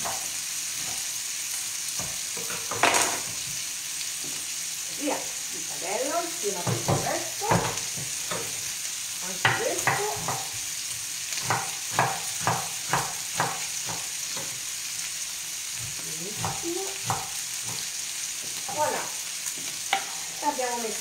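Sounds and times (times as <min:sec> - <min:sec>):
food sizzling in a pan: 0:00.0 - 0:21.0
knife chopping on wooden board: 0:09.5 - 0:10.6, 0:11.4 - 0:14.6, 0:15.8 - 0:17.9.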